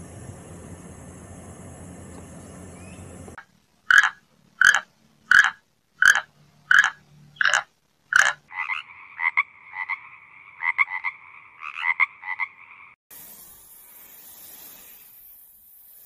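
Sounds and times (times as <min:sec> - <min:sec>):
loud croaking calls: 0:03.9 - 0:13.0
tree frog trilling: 0:03.9 - 0:13.0.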